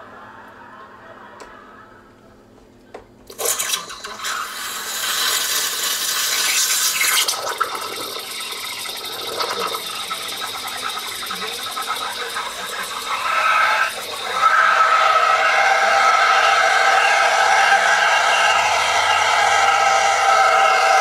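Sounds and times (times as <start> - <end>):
steam wand hissing in milk: 3.4 - 21.0.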